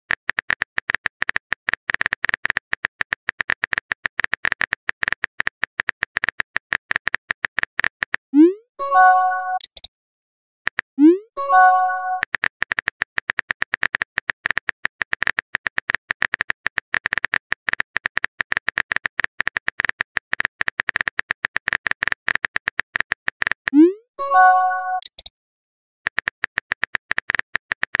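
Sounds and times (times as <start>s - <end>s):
phone keyboard typing clicks: 9.5s - 9.9s, 11.5s - 23.8s, 24.5s - 25.3s, 26.1s - 28.0s.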